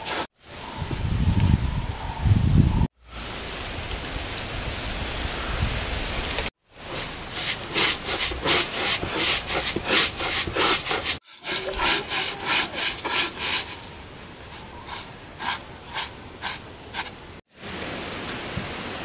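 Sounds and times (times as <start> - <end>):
stone roller grinding seeds: 6.9 - 13.9.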